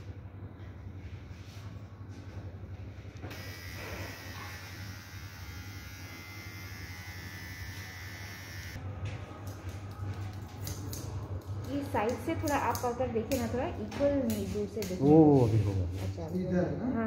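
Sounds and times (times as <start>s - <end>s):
electric hair clipper buzzing: 3.2s - 8.8s.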